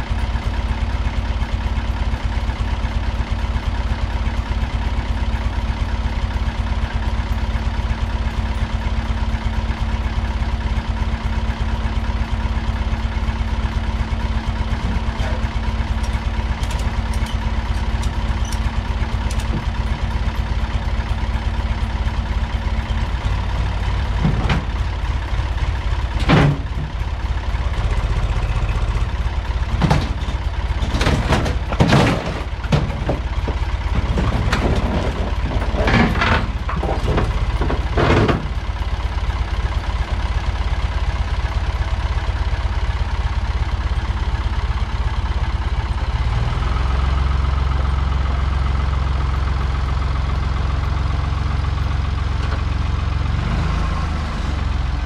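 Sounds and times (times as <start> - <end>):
tractor engine idling: 0.0 - 55.0
metallic clanks and bangs: 24.0 - 25.0, 26.1 - 27.0, 29.6 - 38.7.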